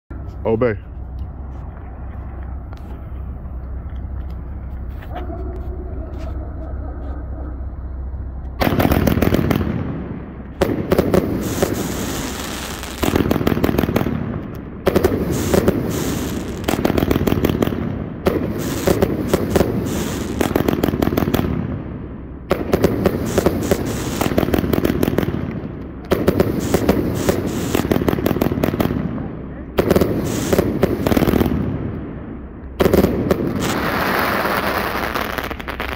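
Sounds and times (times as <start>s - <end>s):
firework crackling: 1.0s - 35.9s
firework shots and bursts: 8.5s - 35.9s.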